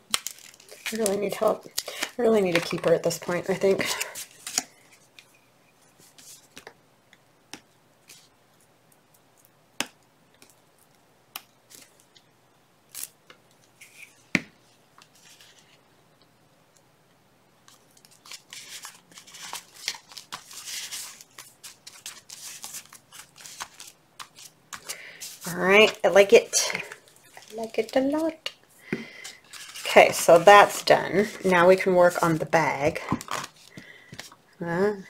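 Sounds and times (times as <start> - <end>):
paper rustling and rubbing: 15.1 - 15.8, 17.7 - 26.0, 29.4 - 32.6.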